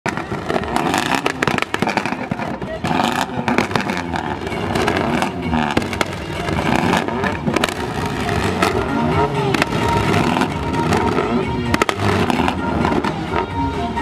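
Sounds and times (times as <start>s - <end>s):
car engines revving: 0.0s - 14.0s
exhaust pops and cracks: 0.1s - 7.8s.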